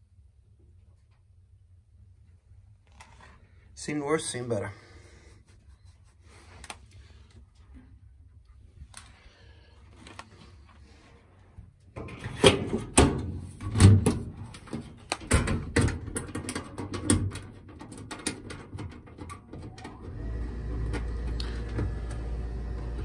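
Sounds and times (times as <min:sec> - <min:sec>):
sheet metal panels knocking and rattling: 0:12.0 - 0:19.8.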